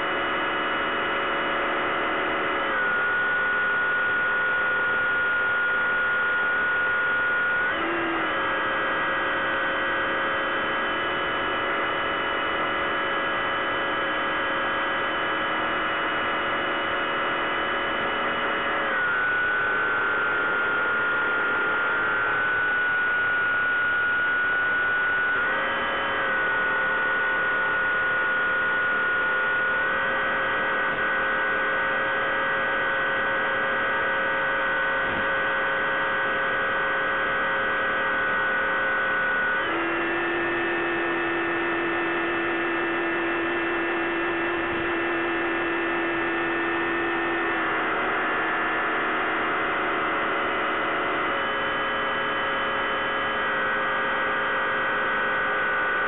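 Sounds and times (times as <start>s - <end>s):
model plane motor buzzing: 39.3s - 47.5s.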